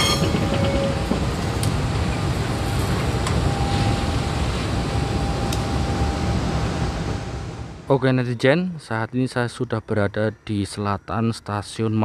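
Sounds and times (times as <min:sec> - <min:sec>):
diesel locomotive engine rumbling: 0:00.0 - 0:08.3.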